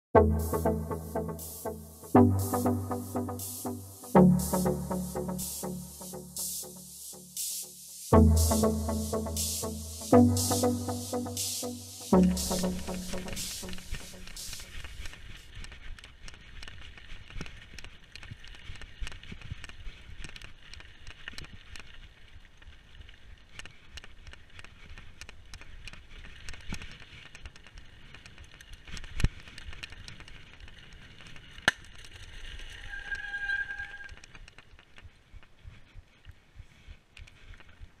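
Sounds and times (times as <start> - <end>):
squeal: 32.7 - 34.2.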